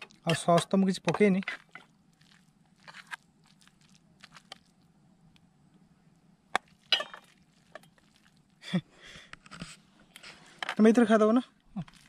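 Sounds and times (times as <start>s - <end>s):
metal spatula clinking on plates: 6.9s - 7.3s.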